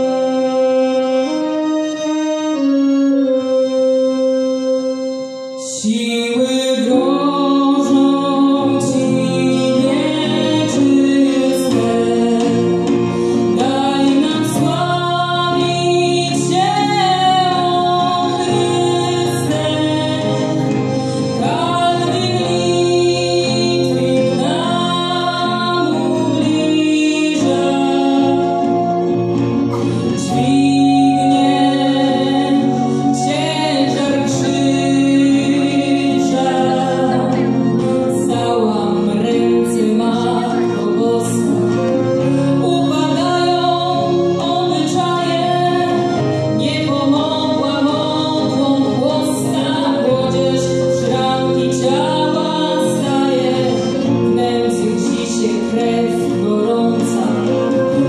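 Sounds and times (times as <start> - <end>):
accordion: 0.0 - 58.0
acoustic guitar: 0.0 - 58.0
voices singing together: 30.0 - 58.0.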